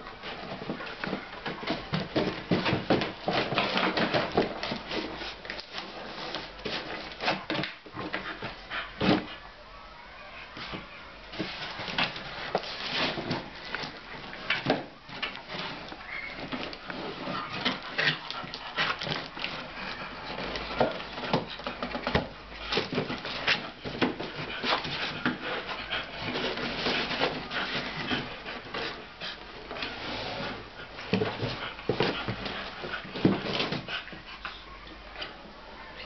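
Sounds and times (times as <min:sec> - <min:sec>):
dog tearing cardboard box: 0:00.4 - 0:09.3, 0:11.4 - 0:29.2
box scraping on floor: 0:11.4 - 0:14.6, 0:15.2 - 0:34.1.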